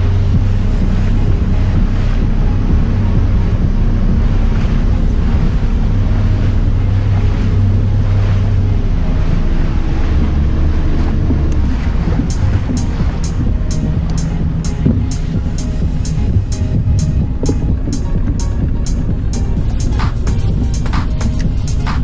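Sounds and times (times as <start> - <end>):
outboard motor running: 0.0 - 22.0
water rushing: 0.0 - 22.0
wind buffeting the microphone: 0.0 - 22.0.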